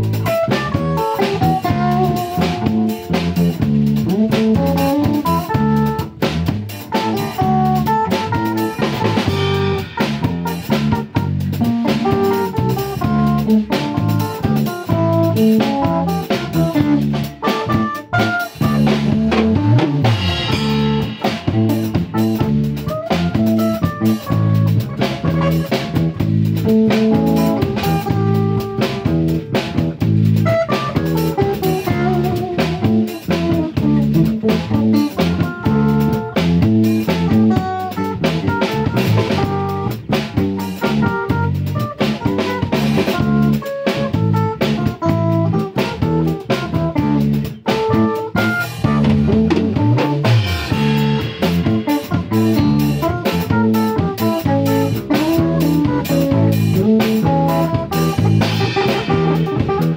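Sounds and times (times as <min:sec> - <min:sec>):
bass guitar: 0:00.0 - 0:59.9
drum kit beat: 0:00.0 - 0:59.9
electric guitar melody: 0:00.0 - 0:59.9.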